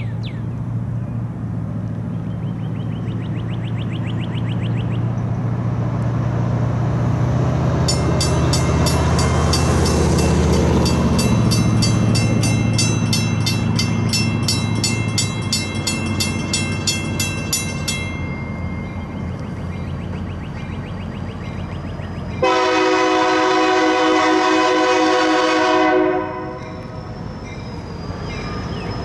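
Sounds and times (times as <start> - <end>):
diesel locomotive passing: 0.0 - 29.0
locomotive bell ringing: 7.8 - 19.9, 26.2 - 29.0.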